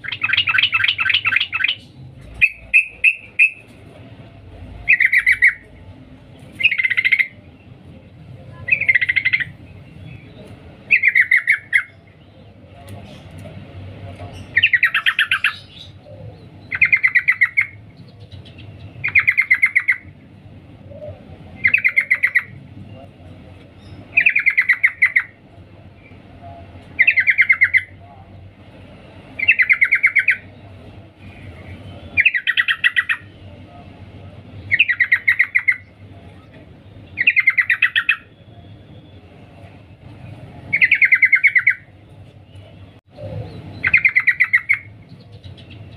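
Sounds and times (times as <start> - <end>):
bird chattering call: 0.0 - 3.7, 4.8 - 5.7, 6.6 - 7.4, 8.6 - 10.2, 10.9 - 12.1, 14.4 - 20.1, 21.0 - 22.6, 23.8 - 25.4, 29.4 - 30.5, 32.1 - 33.4, 34.7 - 35.9, 37.1 - 38.4, 40.7 - 41.9, 43.2 - 45.9.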